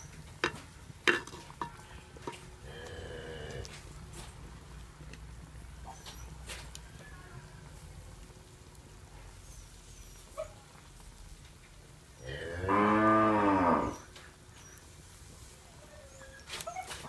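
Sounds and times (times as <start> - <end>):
cow mooing: 2.6 - 3.8, 12.2 - 14.0.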